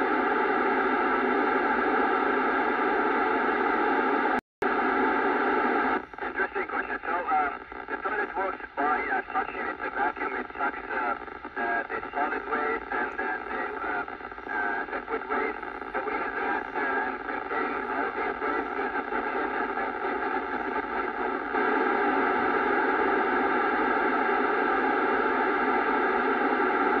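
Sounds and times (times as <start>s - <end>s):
radio receiver hiss: 0.1s - 27.0s.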